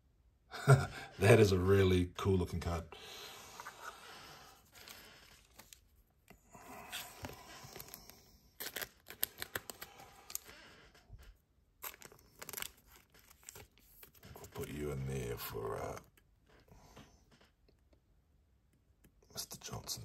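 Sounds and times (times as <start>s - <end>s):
packaging rustling and crinkling: 3.6s - 6.0s, 6.9s - 14.7s.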